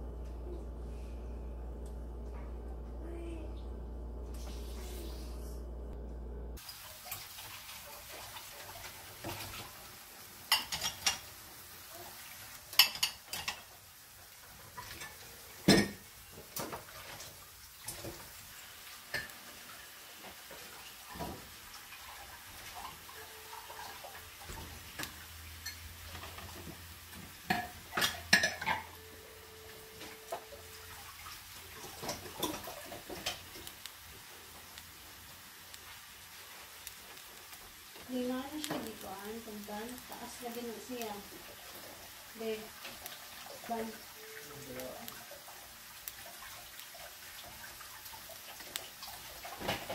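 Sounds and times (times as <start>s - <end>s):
chestnuts shifting in pan: 31.0s - 47.8s.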